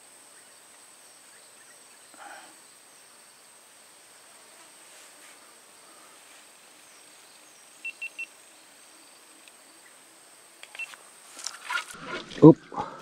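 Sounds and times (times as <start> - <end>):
high insect hum: 0.0 - 12.0.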